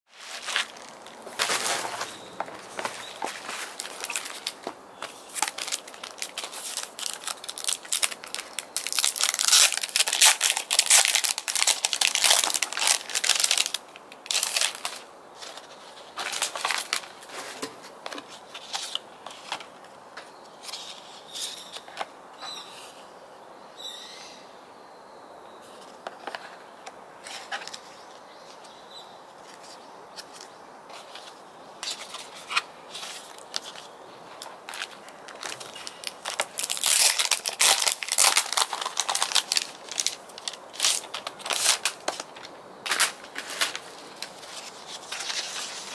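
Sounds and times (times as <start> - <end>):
packaging crinkling and rustling: 0.2 - 19.8, 29.5 - 45.9.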